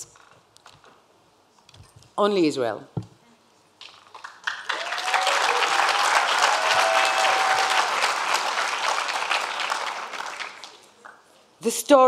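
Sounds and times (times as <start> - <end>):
large audience applauding: 4.0 - 11.2.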